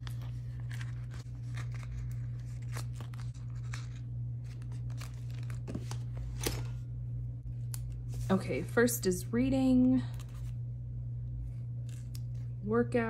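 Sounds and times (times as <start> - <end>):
sticker pages rustling: 0.0 - 6.7
steady low hum: 0.0 - 13.0.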